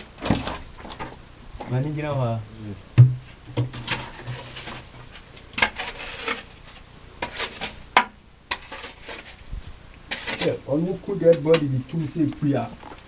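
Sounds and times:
shovel scraping wet gravel: 0:03.8 - 0:04.9, 0:05.6 - 0:07.8, 0:08.5 - 0:09.4, 0:10.1 - 0:10.6.

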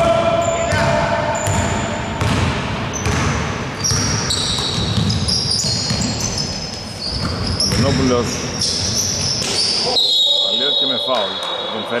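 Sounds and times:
sneakers squeaking on floor: 0:00.4 - 0:12.0
basketball bouncing on hardwood floor: 0:00.7 - 0:06.3, 0:07.1 - 0:08.0.

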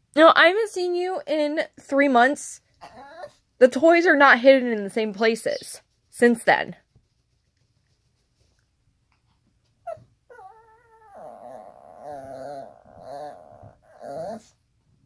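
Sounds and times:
small dog whining: 0:02.8 - 0:03.4, 0:09.8 - 0:14.6.

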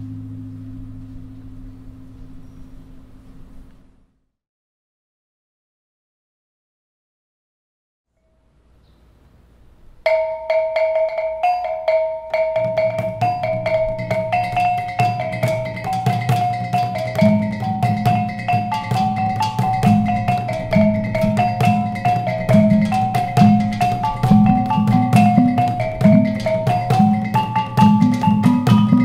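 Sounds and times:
small tuned gongs melody: 0:00.0 - 0:03.6, 0:10.0 - 0:29.0
low hanging gongs: 0:00.0 - 0:03.7, 0:10.1 - 0:29.0
drum beating: 0:10.1 - 0:29.0.

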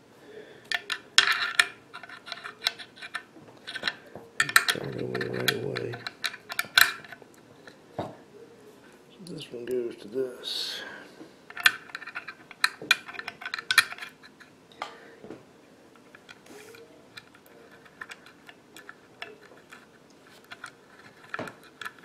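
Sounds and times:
small metal parts clicking: 0:00.7 - 0:07.2, 0:11.5 - 0:14.2, 0:16.1 - 0:22.0.

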